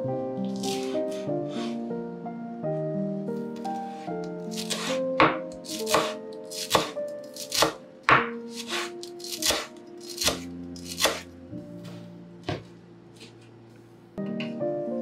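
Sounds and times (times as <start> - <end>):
soft background music: 0.0 - 15.0
knife chopping on cutting board: 4.5 - 11.3.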